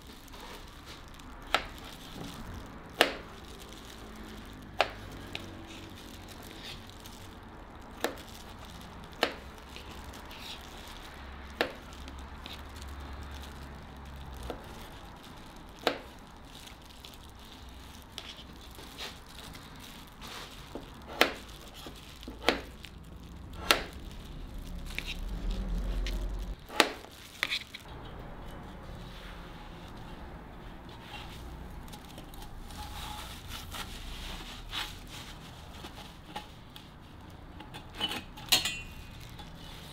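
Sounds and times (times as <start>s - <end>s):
low rumble: 22.0s - 26.6s.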